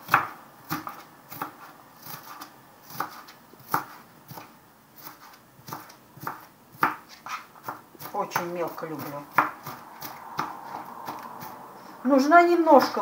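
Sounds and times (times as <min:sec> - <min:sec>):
knife chopping on plastic board: 0:00.0 - 0:11.6.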